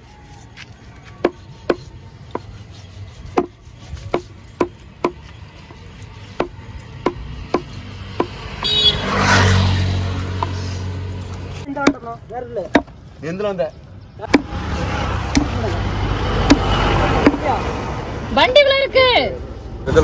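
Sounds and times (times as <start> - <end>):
knife chopping on wooden block: 1.2 - 2.5, 3.2 - 5.2, 6.4 - 8.8, 12.7 - 13.0, 15.3 - 15.6.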